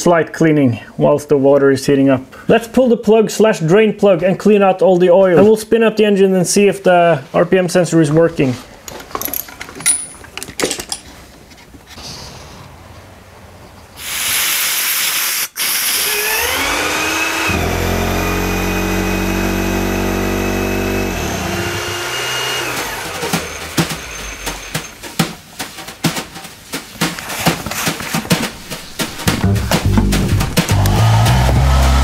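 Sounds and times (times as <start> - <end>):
hiss: 14.0 - 16.2
two-stroke engine whining: 16.1 - 24.9, 29.3 - 32.0
sharp clicks or knocks: 22.7 - 31.6.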